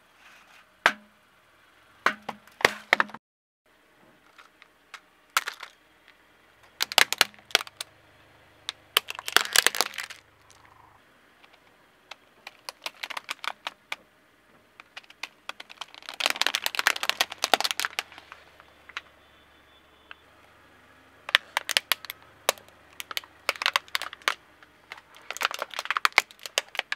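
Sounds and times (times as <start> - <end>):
plastic masks crackling flat: 4.2 - 7.9, 8.6 - 14.1, 14.7 - 19.2, 21.2 - 26.9.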